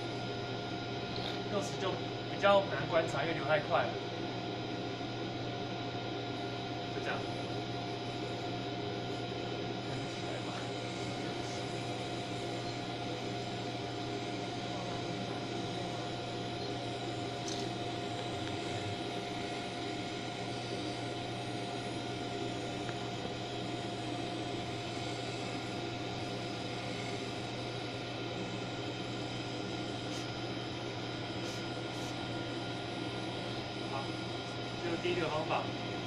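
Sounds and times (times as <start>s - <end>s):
constant mid-pitched tone: 6.9s - 36.0s
machinery whirring hiss: 9.8s - 35.9s.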